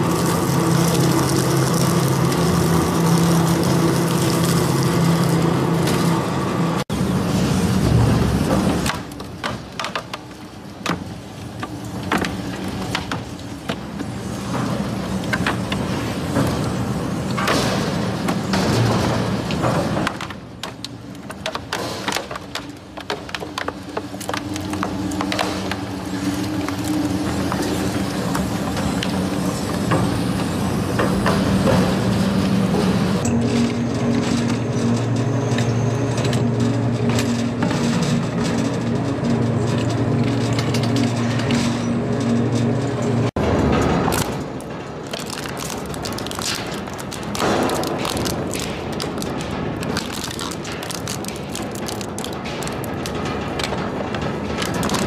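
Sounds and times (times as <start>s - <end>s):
crushing machine engine drone: 0.0s - 55.0s
material cracking and crunching: 19.0s - 30.0s, 33.5s - 55.0s.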